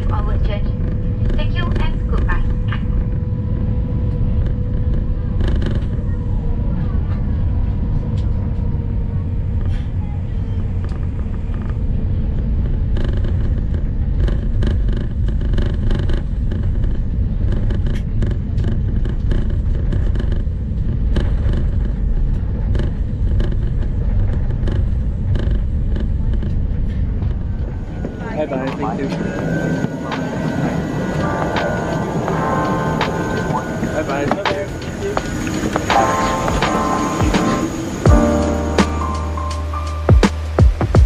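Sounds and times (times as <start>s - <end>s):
aircraft engines low rumble: 0.0s - 41.0s
faint steady whine: 0.0s - 41.0s
wheels rolling over pavement: 10.6s - 39.2s.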